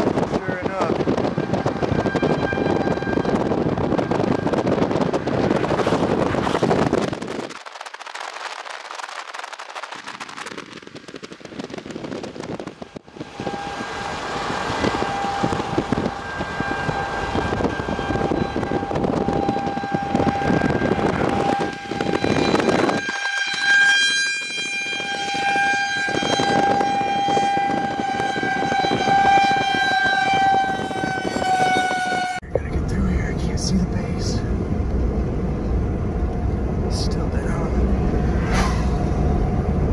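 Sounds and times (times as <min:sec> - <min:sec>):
warning siren steady high tone: 0:00.0 - 0:07.5, 0:09.5 - 0:32.4
loud rushing noise: 0:00.0 - 0:23.2, 0:32.4 - 0:39.9.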